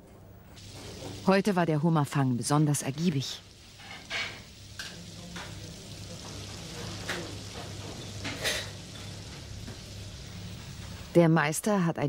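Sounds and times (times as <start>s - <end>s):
sizzling hiss: 0.4s - 11.4s
plates and utensils clinking: 3.8s - 5.6s, 6.2s - 9.9s.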